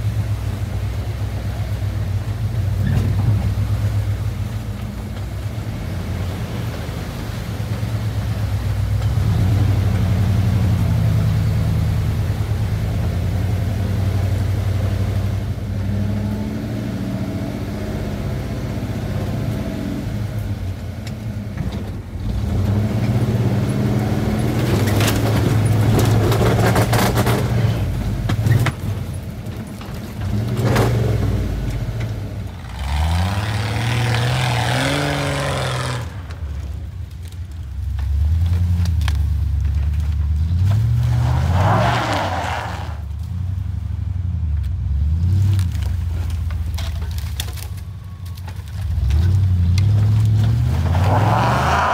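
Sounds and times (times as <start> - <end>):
car engine revving under load: 30.0 - 37.2, 37.8 - 47.2, 48.8 - 51.9.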